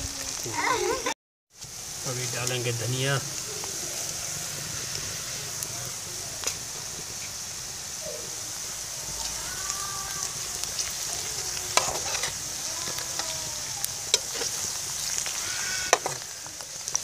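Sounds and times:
onions sizzling in oil: 0.0 - 17.0
spatula scraping a pan: 10.7 - 13.4, 14.1 - 17.0.

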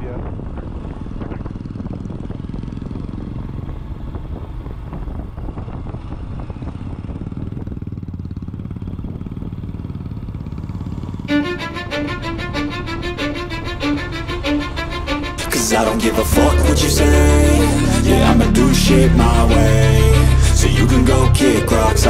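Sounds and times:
motorcycle engine running: 0.0 - 22.0
music with repeating notes: 11.3 - 22.0.

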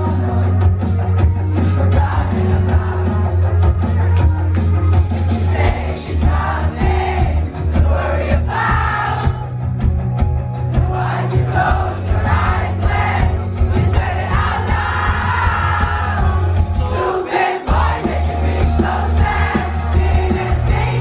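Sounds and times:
crowd voices: 0.0 - 21.0
live pop music with heavy bass: 0.0 - 21.0.

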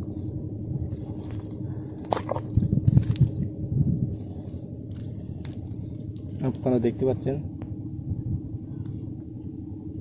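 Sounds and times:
squelching mud: 1.1 - 3.4.

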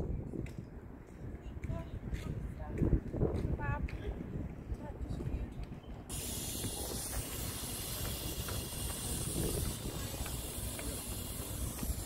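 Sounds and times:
steady high hiss: 6.1 - 12.0.

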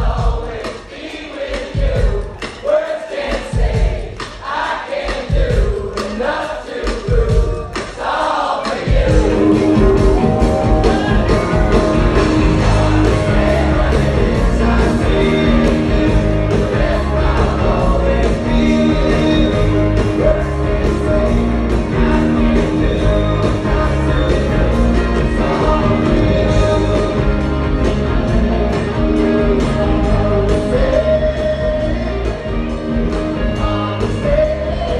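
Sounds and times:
crowd singing together: 0.0 - 34.9
drums keeping a beat: 0.0 - 34.9
electric guitar: 9.2 - 34.9.

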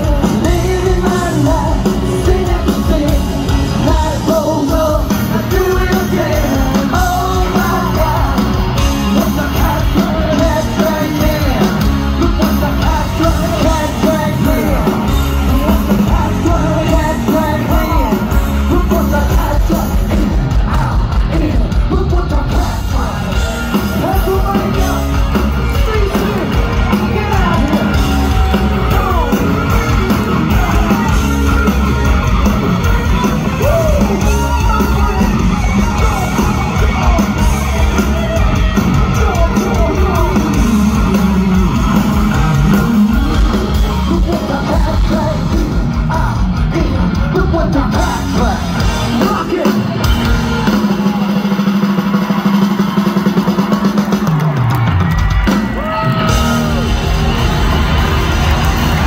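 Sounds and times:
person singing and yelling: 0.0 - 51.7
drums: 0.0 - 59.0
live rock band playing: 0.0 - 59.0.

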